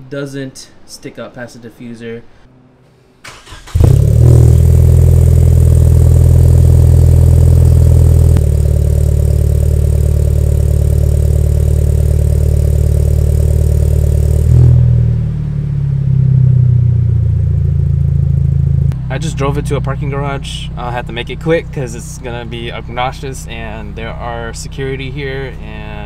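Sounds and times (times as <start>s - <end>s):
car engine starting and idling: 3.2s - 26.0s.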